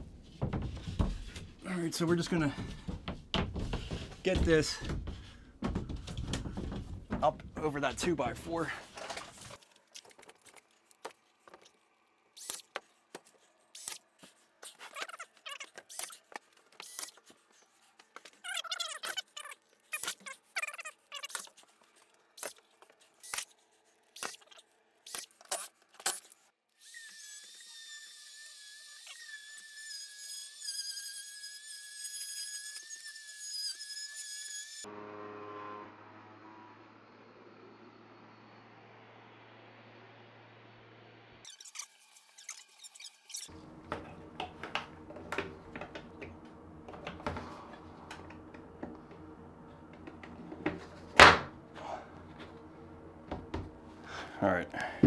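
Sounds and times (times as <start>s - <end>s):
spiral saw whining through drywall: 26.8s - 35.1s.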